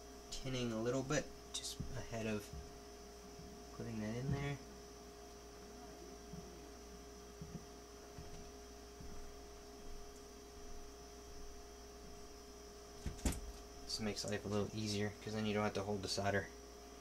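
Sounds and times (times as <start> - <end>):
faint electrical hum: 0.0 - 17.0
soft taps and handling knocks: 1.6 - 2.7.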